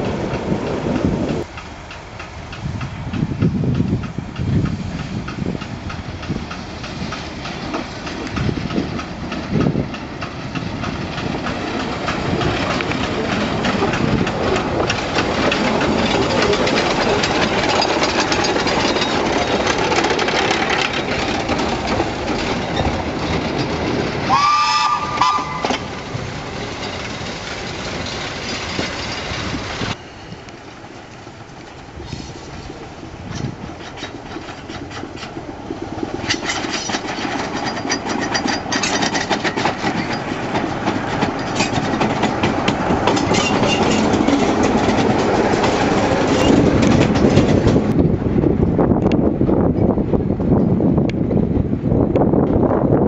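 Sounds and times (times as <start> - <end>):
wheels and wagons clattering: 5.4 - 30.0, 31.5 - 48.0
steam locomotive exhaust: 23.9 - 36.5
locomotive whistle: 24.2 - 25.9.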